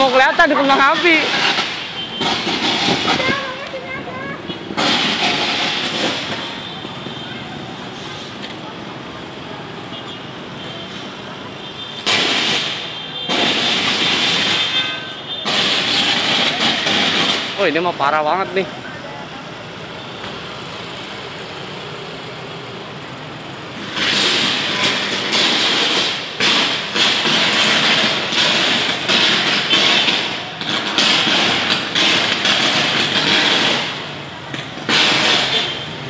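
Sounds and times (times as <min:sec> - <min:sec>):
power cable arcing and crackling: 0:00.0 - 0:06.9, 0:11.9 - 0:18.7, 0:23.7 - 0:36.0.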